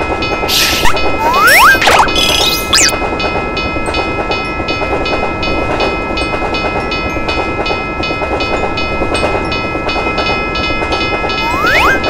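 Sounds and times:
railroad crossing bell ringing: 3.0 - 12.0.

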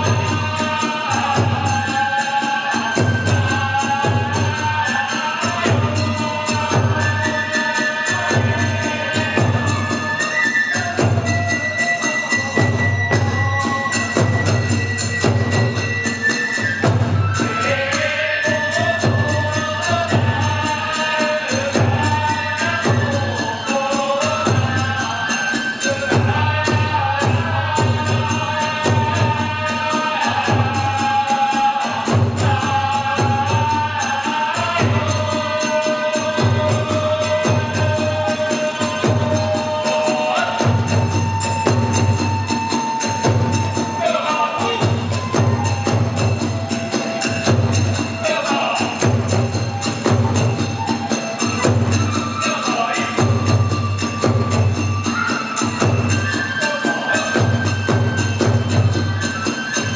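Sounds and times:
large drum beat: 0.0 - 10.0, 12.5 - 20.9, 26.1 - 56.1
bamboo flute melody: 0.0 - 59.9
hand cymbals clashing: 0.0 - 59.9
taiko drum beating: 12.6 - 17.6, 40.6 - 44.0, 44.6 - 48.2, 48.8 - 52.2.

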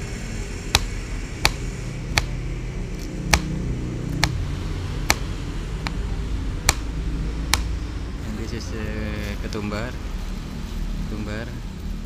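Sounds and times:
low background rumble: 0.0 - 12.0
knife chopping on plastic board: 0.8 - 2.4, 3.3 - 3.5, 6.7 - 6.9.

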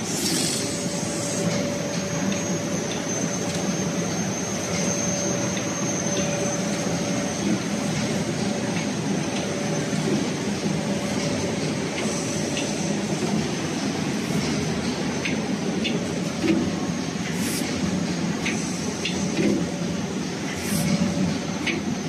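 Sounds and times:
continuous machine whine: 0.0 - 22.0
machine mechanical drone: 0.0 - 22.0.

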